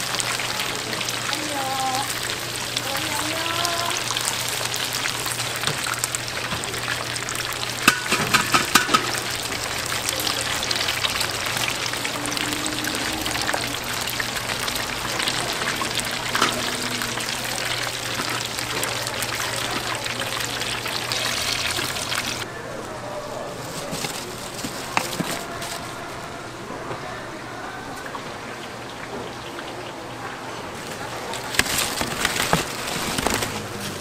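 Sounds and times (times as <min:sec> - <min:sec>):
food sizzling: 0:00.0 - 0:22.5, 0:27.9 - 0:34.0.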